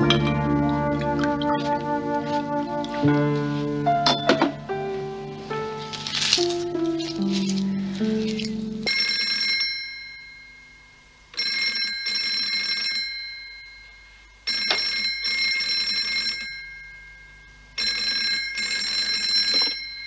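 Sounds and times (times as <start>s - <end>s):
telephone bell ringing: 8.9s - 20.0s.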